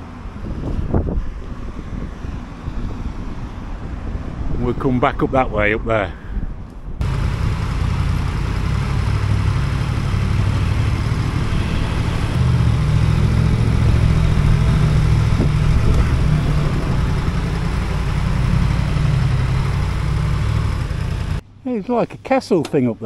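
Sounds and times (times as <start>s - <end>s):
motorcycle engine running: 7.0s - 21.4s.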